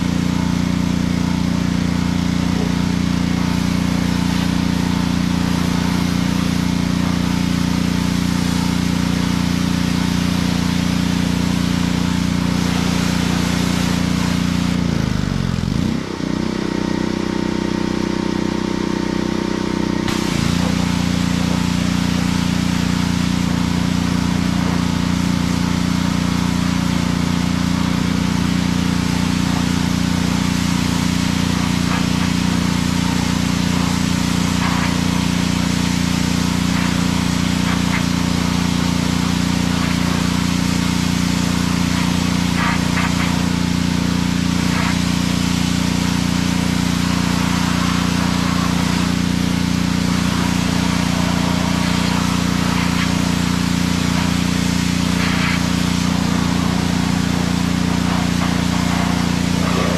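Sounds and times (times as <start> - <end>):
water spraying hiss: 0.0 - 15.2, 20.1 - 59.9
pressure washer motor running: 0.0 - 59.9.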